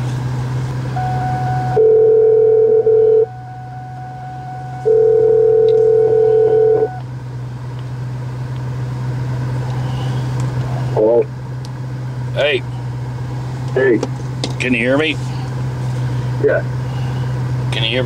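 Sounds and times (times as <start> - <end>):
low steady hum: 0.0 - 18.0
faint steady high tone: 0.9 - 7.0
telephone ringback tone: 1.0 - 7.0.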